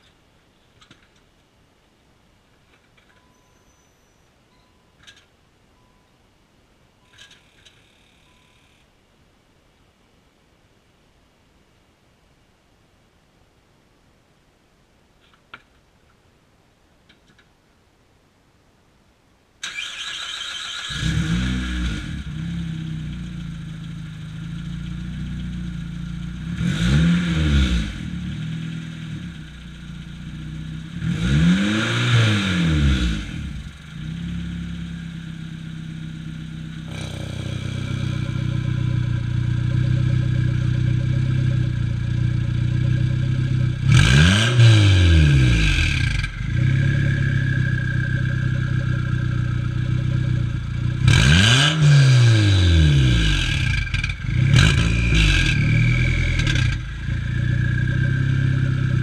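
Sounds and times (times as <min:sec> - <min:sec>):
car engine starting and idling: 0:19.6 - 0:59.0
engine revving: 0:19.6 - 0:59.0.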